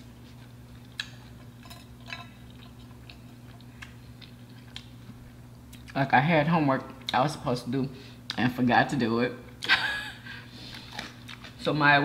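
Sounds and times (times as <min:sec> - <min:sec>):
person chewing crunchy food: 0:00.0 - 0:06.0, 0:10.5 - 0:11.6
steady low hum: 0:00.0 - 0:12.0.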